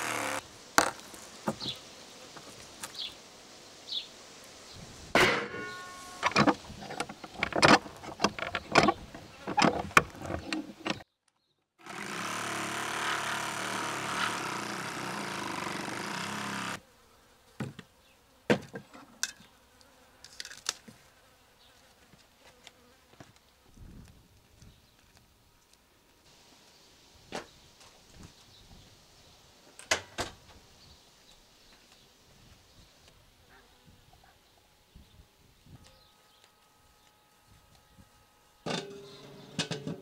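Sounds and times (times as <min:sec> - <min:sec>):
steady buzzing hum: 0:00.0 - 0:01.0, 0:11.8 - 0:16.8.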